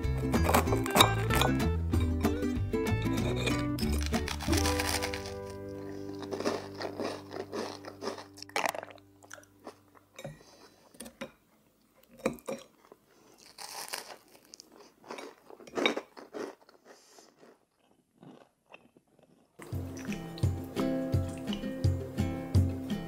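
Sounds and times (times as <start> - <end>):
background music: 0.0 - 9.6, 19.6 - 23.0
knife and fork crunching toast: 0.2 - 1.6, 3.2 - 9.8, 13.4 - 19.4.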